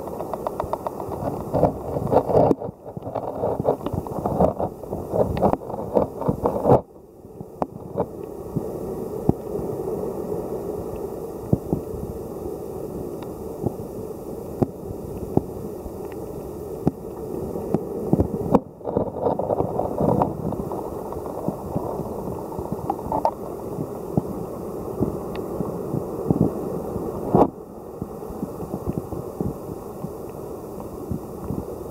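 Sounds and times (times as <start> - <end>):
sharp underwater clicks: 0.0 - 6.8
underwater water wash: 0.0 - 31.9.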